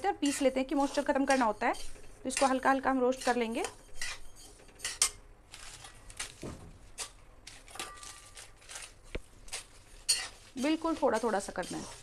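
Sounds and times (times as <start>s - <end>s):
seeds rustling in a metal pan: 0.0s - 5.9s, 9.6s - 12.0s
steel spatula scraping: 0.0s - 6.0s, 7.0s - 12.0s.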